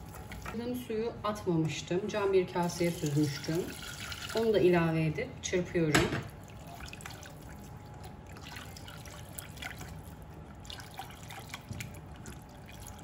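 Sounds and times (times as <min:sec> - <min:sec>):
whisk sloshing liquid in a pot: 0:00.0 - 0:00.8, 0:06.4 - 0:13.0.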